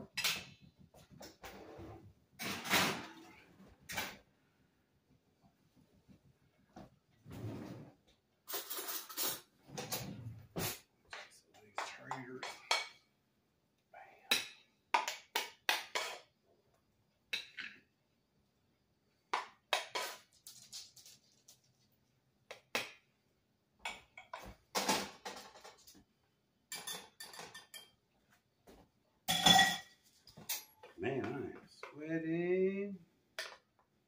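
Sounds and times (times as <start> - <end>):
dishes and utensils clattering: 8.5 - 13.1, 14.3 - 16.3, 19.4 - 21.1, 23.8 - 26.0, 26.7 - 28.0, 29.3 - 31.0.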